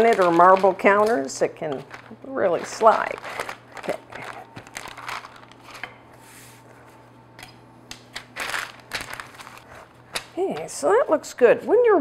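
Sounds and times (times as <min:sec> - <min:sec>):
paper rustling and crinkling: 0:00.0 - 0:06.9, 0:08.2 - 0:10.7.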